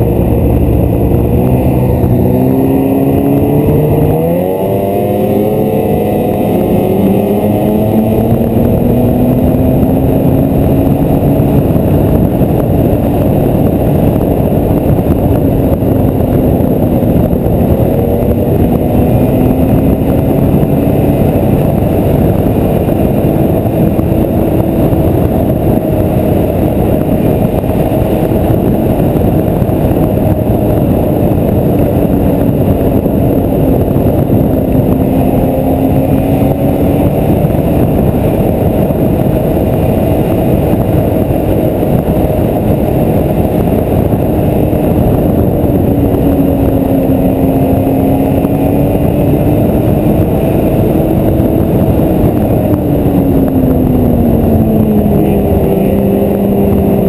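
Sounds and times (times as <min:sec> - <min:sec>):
snowmobile engine running: 0:00.0 - 0:57.0
snowmobile track noise: 0:00.0 - 0:57.0
wind rushing: 0:00.0 - 0:57.0.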